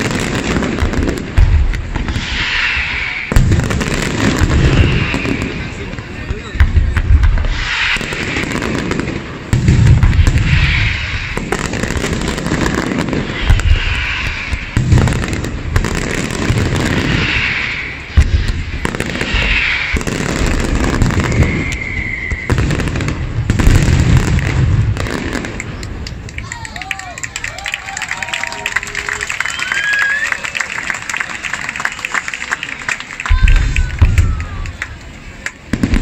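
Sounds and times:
heavy firework booms: 0.0s - 25.8s, 35.7s - 36.0s
firework whistle: 0.0s - 31.7s
fireworks crackling and banging: 0.0s - 36.0s.

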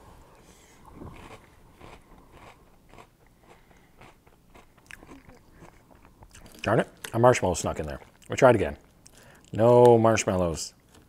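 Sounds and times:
person chewing crunchy cereal: 0.9s - 9.6s.

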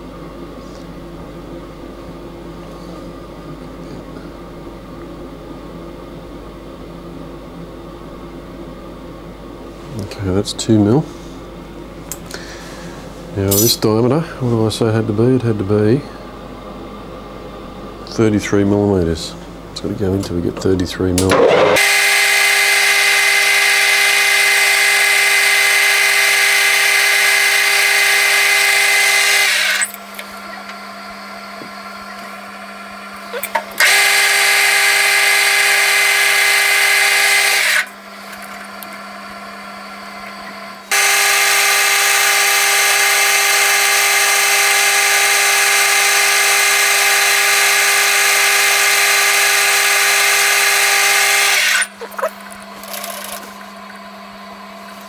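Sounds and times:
metal lathe cutting ringing: 13.5s - 13.9s
lathe motor hum: 21.4s - 55.0s.

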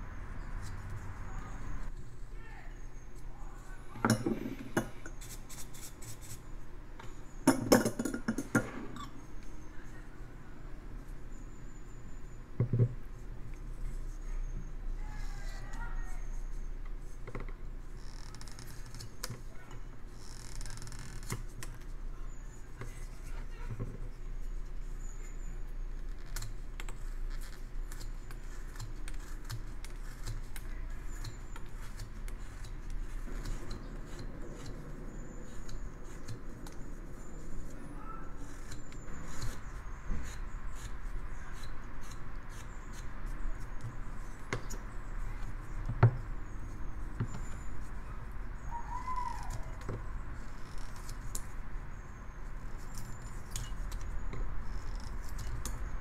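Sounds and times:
knife carving wood: 4.2s - 6.5s, 15.2s - 19.5s, 20.2s - 23.3s, 25.0s - 47.9s, 48.6s - 56.0s.

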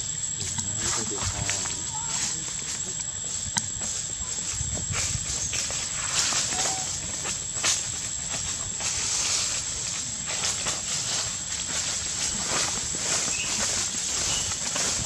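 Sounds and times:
steady high-pitched whine: 0.0s - 15.0s
leaves crackling and rustling: 0.4s - 15.0s.

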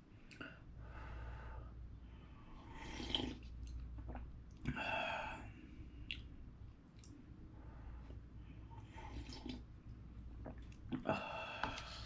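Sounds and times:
person slurping noodles: 2.8s - 3.5s, 9.1s - 9.6s.

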